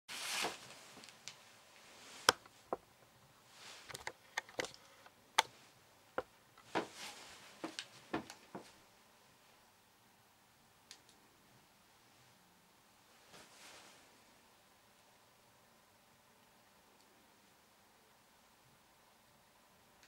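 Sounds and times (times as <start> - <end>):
soft rustles: 0.1 - 2.7, 3.3 - 4.2, 6.6 - 8.8, 13.1 - 14.4.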